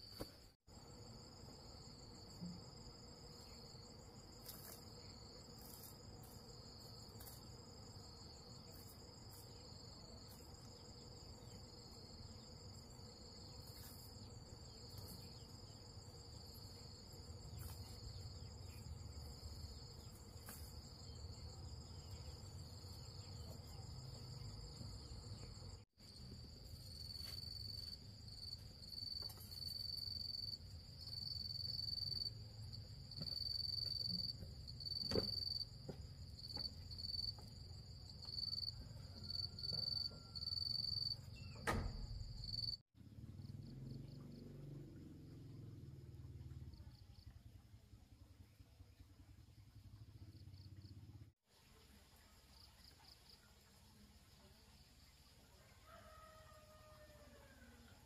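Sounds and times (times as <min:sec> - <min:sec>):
insects trilling: 0:00.8 - 0:42.8.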